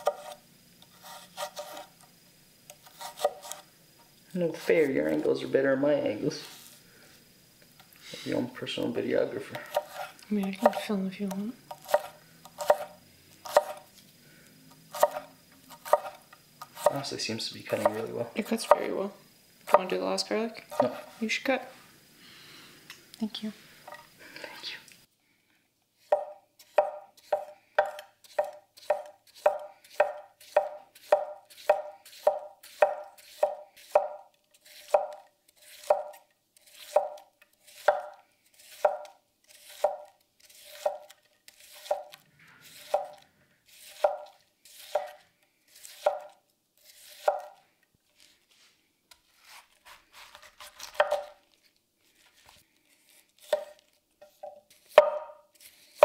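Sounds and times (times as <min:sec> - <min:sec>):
knife slicing cabbage on board: 0:00.0 - 0:01.9, 0:02.7 - 0:03.7, 0:09.5 - 0:14.0, 0:14.9 - 0:17.0, 0:17.7 - 0:18.9, 0:20.7 - 0:21.2, 0:26.0 - 0:47.6, 0:49.2 - 0:51.5, 0:52.3 - 0:56.0.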